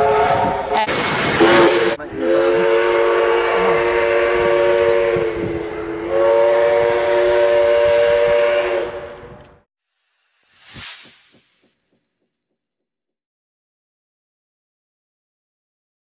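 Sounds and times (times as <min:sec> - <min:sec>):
train horn blasts: 0:00.0 - 0:09.4.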